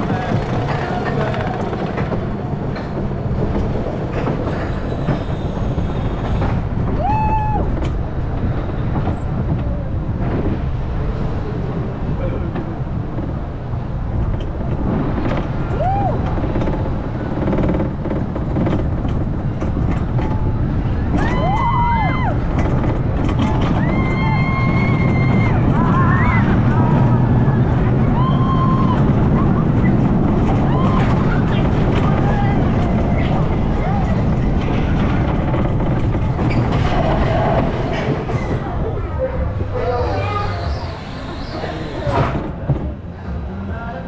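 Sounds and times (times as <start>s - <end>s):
roller coaster wheels rumbling: 0.0s - 44.0s
high-pitched squeals: 36.4s - 42.4s.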